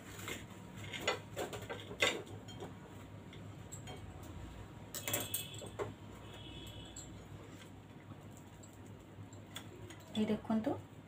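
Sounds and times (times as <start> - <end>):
cutlery clattering on plate: 0.8 - 2.8, 4.9 - 6.0.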